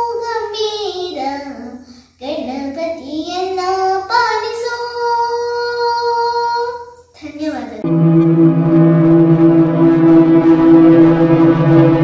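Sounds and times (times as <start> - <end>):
girl singing devotional song: 0.0 - 7.8.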